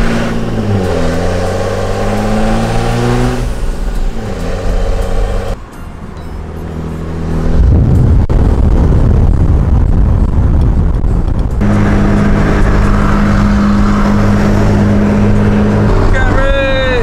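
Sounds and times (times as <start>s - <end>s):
vehicle engine and road noise: 0.0s - 17.0s
wind on microphone: 7.4s - 16.0s.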